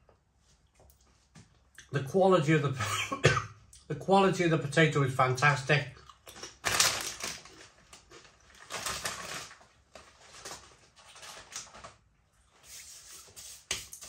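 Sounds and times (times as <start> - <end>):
potato crisp crunching: 6.0 - 9.6
crisp packet rustling: 6.3 - 12.1.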